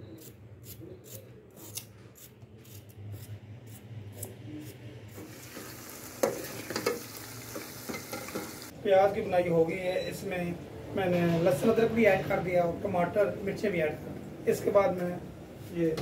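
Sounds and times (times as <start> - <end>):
vegetables sizzling in a pot: 5.2 - 8.8
spoon stirring and knocking pot: 5.6 - 8.6.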